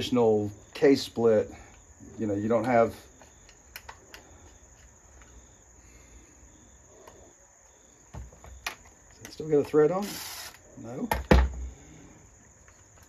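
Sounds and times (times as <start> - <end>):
clicks and taps of parts: 2.6 - 5.4.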